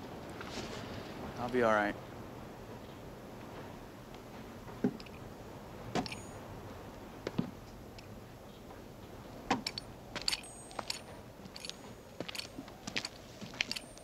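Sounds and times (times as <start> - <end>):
low steady hiss: 0.0 - 14.0
boot footsteps: 9.5 - 14.0
light metallic jingle: 9.7 - 14.0.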